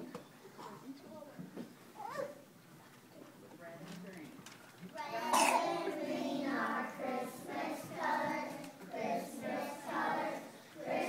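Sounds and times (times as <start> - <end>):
young children singing: 5.0 - 11.0.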